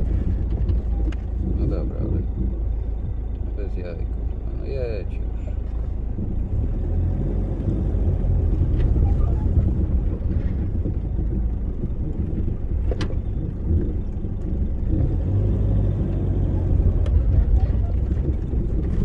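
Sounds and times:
truck engine rumbling: 0:00.0 - 0:19.0.

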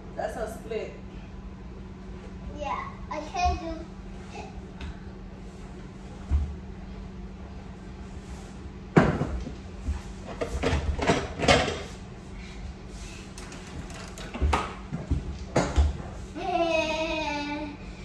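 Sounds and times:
steady low hum: 0:00.0 - 0:18.0
child's voice: 0:02.5 - 0:03.9.

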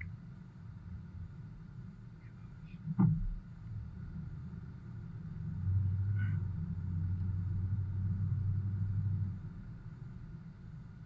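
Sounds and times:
car driving on snow: 0:03.6 - 0:11.0.

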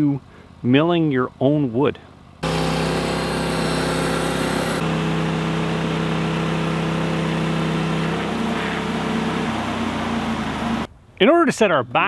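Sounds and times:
sawmill gasoline engine running: 0:02.4 - 0:10.9.

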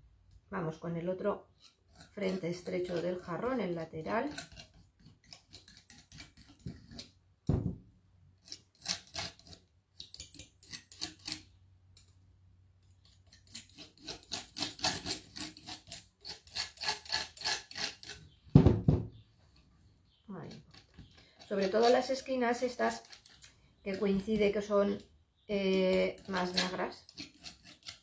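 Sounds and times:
spatula scraping paint: 0:01.4 - 0:07.2, 0:08.4 - 0:11.6, 0:13.0 - 0:18.4, 0:19.7 - 0:28.0
knock: 0:07.5 - 0:07.8, 0:18.5 - 0:19.2
thump: 0:07.5 - 0:07.8, 0:18.5 - 0:19.1.

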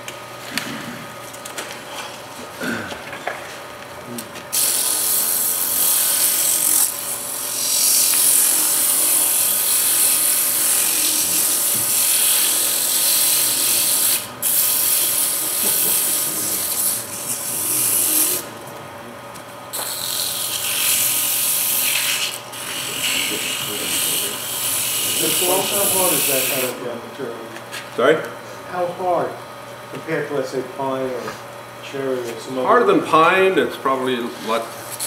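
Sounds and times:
sandpaper rasping on lathe: 0:04.5 - 0:18.5, 0:19.8 - 0:26.8.

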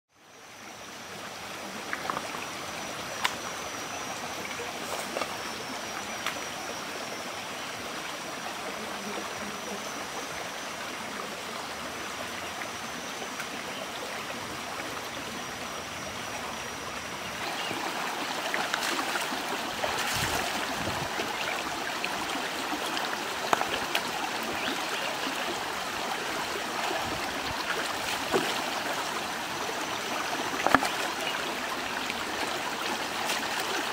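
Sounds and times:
stream babbling over stones: 0:00.2 - 0:33.9
splashes of wading water: 0:17.3 - 0:33.9.

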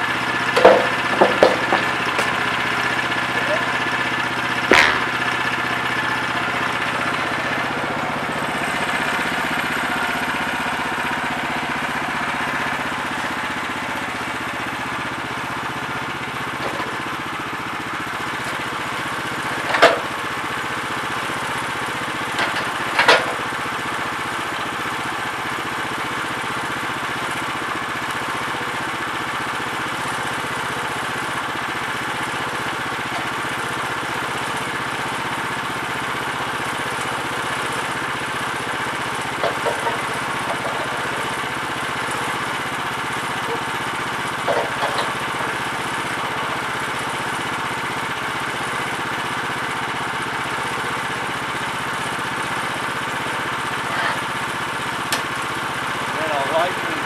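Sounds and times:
small gas engine running: 0:00.0 - 0:57.0
sharp knocks: 0:04.6 - 0:05.2.

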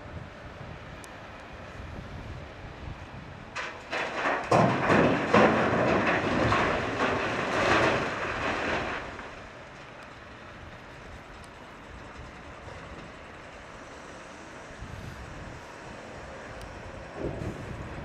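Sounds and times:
diesel engines humming: 0:00.0 - 0:18.0
rocks crashing into truck body: 0:03.6 - 0:09.6.

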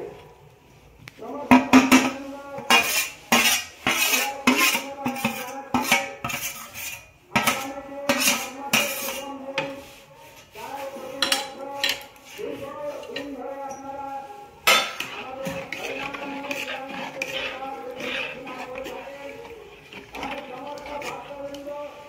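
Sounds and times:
ladle scraping steel plate: 0:01.8 - 0:09.3, 0:14.7 - 0:22.0.

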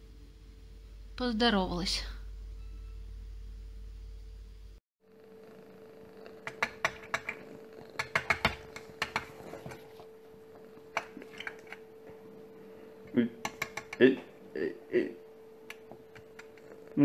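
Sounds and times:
steady low hum: 0:00.0 - 0:17.0
claws tapping on glass: 0:13.4 - 0:14.0.

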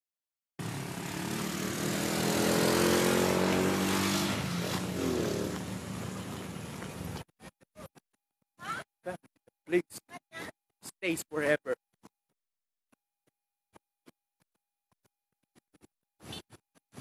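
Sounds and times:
engine running: 0:00.6 - 0:07.6.

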